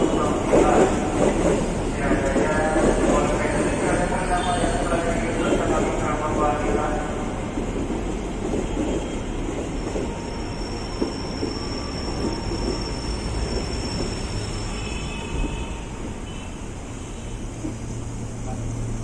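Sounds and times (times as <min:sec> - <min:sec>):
train wheels rumbling on rails: 0:00.0 - 0:19.0
high wheel squeal: 0:09.8 - 0:16.6.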